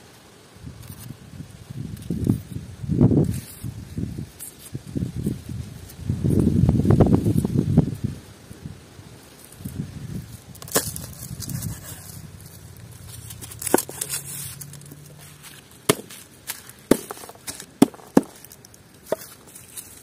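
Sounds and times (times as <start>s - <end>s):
sharp knocks and cracks: 10.5s - 11.8s, 13.1s - 20.0s.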